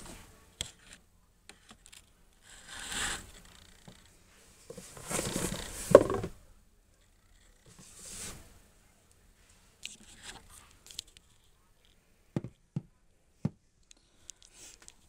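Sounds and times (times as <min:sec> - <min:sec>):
paper rustling and scraping: 0:04.7 - 0:06.3.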